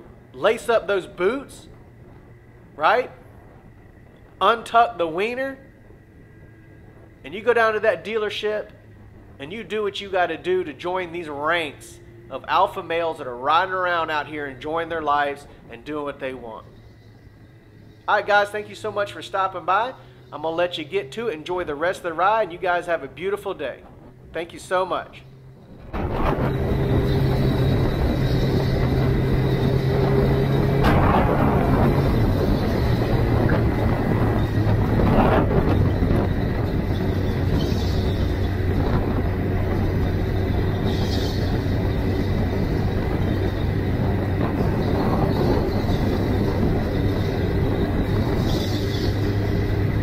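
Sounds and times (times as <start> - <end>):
heavy wind noise: 0.0 - 50.0
motorcycle engine running: 25.2 - 50.0.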